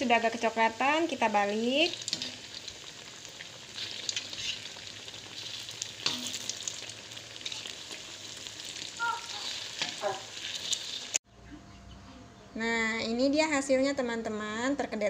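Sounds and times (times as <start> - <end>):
fritters sizzling in hot oil: 0.0 - 11.2
metal spatula clinking on pan: 6.0 - 6.4.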